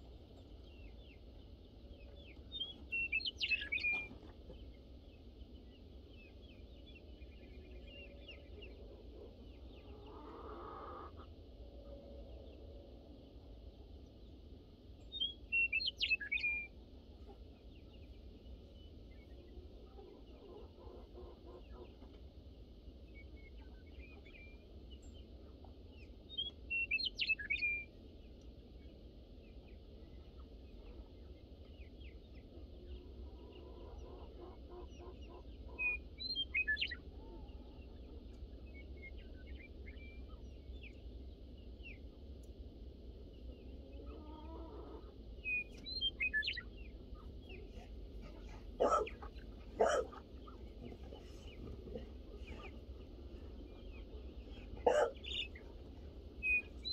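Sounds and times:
birds chirping: 0.0s - 11.4s, 22.9s - 56.9s
chicken clucking: 8.5s - 12.6s, 19.4s - 22.3s, 32.5s - 36.0s, 43.7s - 45.9s, 47.2s - 56.9s.

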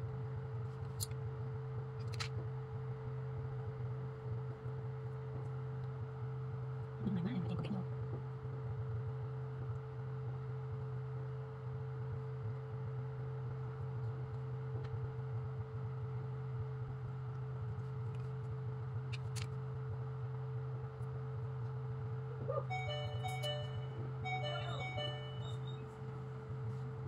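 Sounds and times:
low hum: 15.8s - 27.0s
high steady tone: 22.5s - 26.0s.

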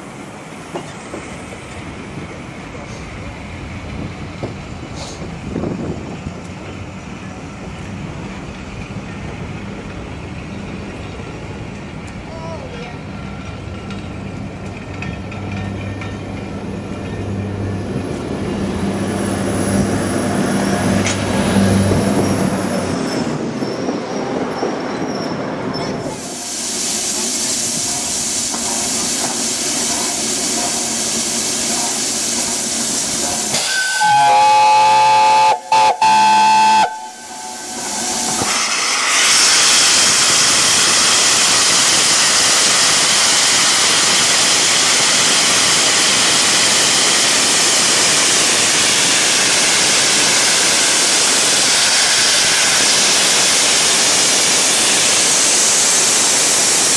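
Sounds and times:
steam locomotive hissing steam: 0.0s - 6.4s, 26.0s - 56.9s
steam whistle blasts: 33.4s - 38.7s.

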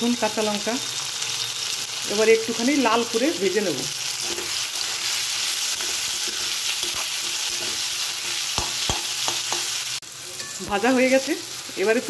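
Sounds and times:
vegetables sizzling in hot oil: 0.0s - 12.0s
spatula stirring: 4.0s - 9.8s
spatula knocking against pan: 8.6s - 9.7s.

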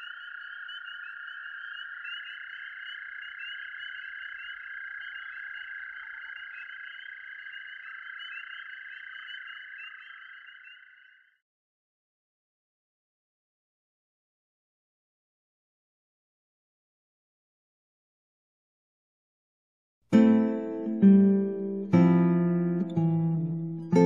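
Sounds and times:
chorus of calling frogs: 0.0s - 11.4s
quick repeated frog chirps: 0.0s - 11.4s.

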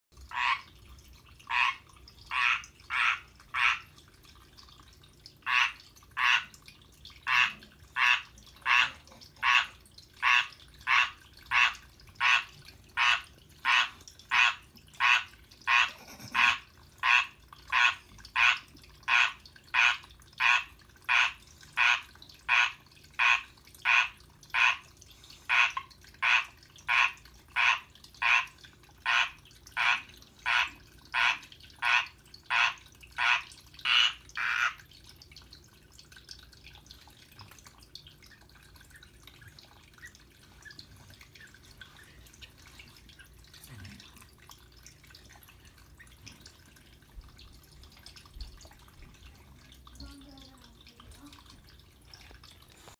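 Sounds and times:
tree frog croaking: 1.5s - 3.8s, 5.5s - 6.5s, 7.2s - 24.8s, 25.5s - 34.8s.

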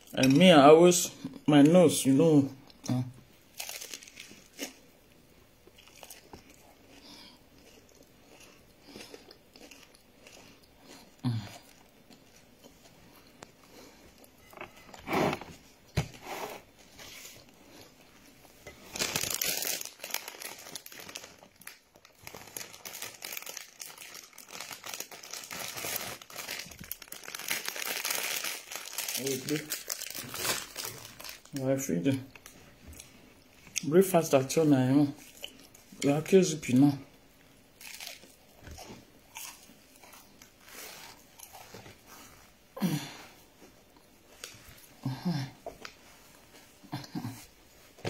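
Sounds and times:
plastic bag crinkling: 3.5s - 4.8s, 18.8s - 32.6s
quiet chewing: 5.6s - 15.0s.

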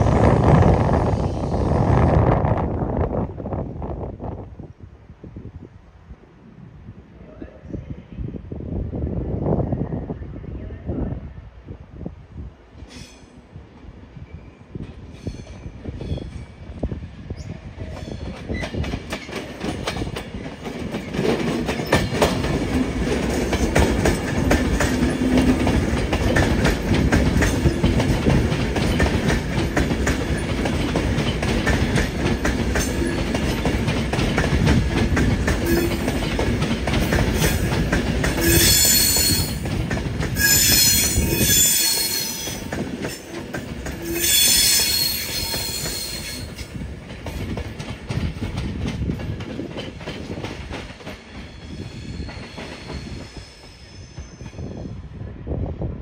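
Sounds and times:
train wheels rumbling on rail: 0.0s - 6.2s, 11.2s - 56.0s
wheels squealing: 38.4s - 39.6s, 40.4s - 43.3s, 44.0s - 46.5s.

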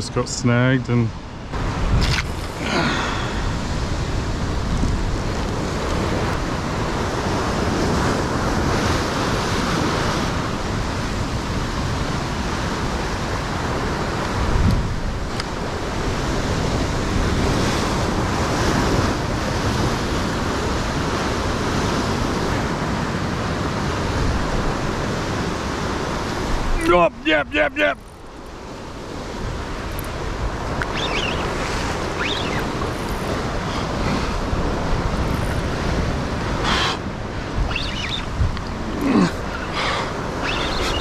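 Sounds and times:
surf washing against rocks: 0.4s - 41.0s
wind buffeting microphone: 1.1s - 41.0s.

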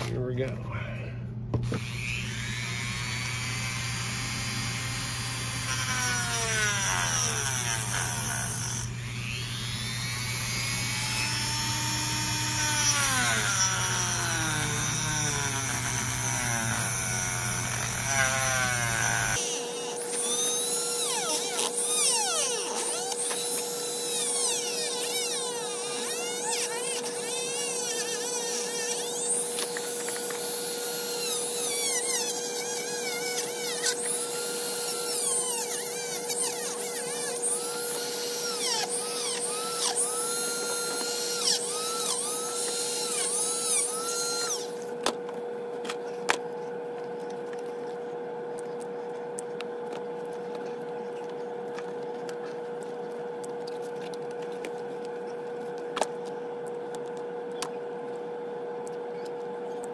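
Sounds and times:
steady hum: 0.0s - 59.9s
rotary tool cutting rubber: 1.6s - 45.0s.

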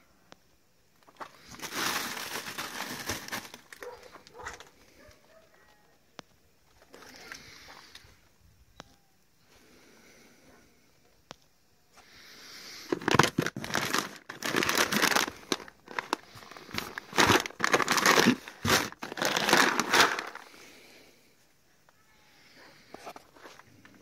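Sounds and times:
plastic bags crinkling: 1.1s - 4.7s, 12.9s - 20.6s.

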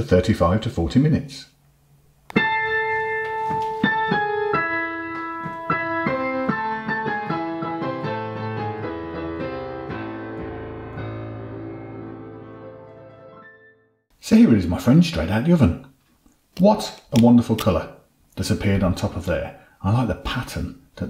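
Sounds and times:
piano melody over chords: 2.3s - 14.0s.

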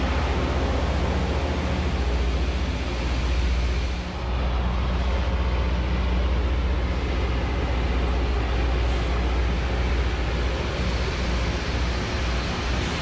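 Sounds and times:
deep engine drone: 0.0s - 13.0s.

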